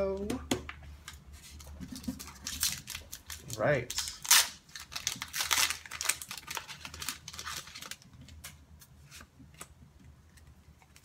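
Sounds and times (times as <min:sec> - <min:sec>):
foil wrapper crinkling: 0:02.0 - 0:08.9.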